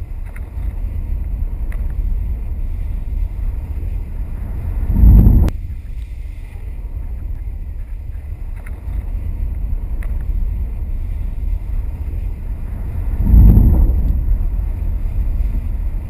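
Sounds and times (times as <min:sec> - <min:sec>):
wind buffeting microphone: 0:00.0 - 0:16.0
faint ticks: 0:00.1 - 0:02.0, 0:08.5 - 0:10.3.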